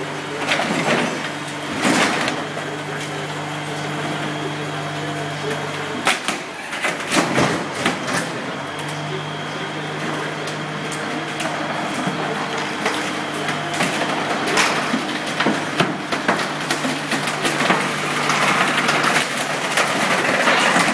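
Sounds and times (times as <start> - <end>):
steady machine hum: 0.0 - 20.9
wood cracking and splintering: 12.9 - 20.9.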